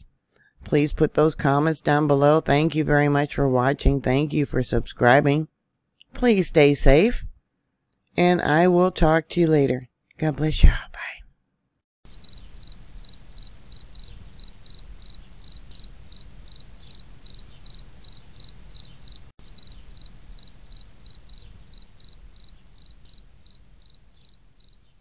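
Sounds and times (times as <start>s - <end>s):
cricket chirping: 12.1s - 25.0s.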